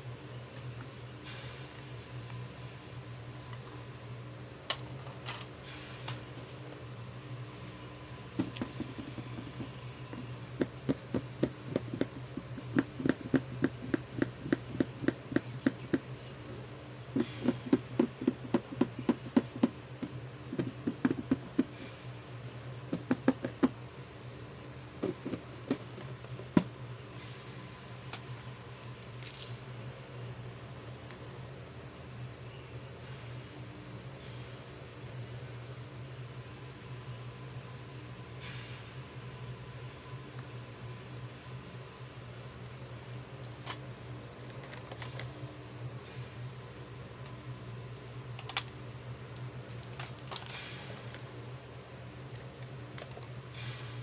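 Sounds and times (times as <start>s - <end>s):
fingers tapping on plastic lid: 10.6s - 16.1s, 17.2s - 21.7s.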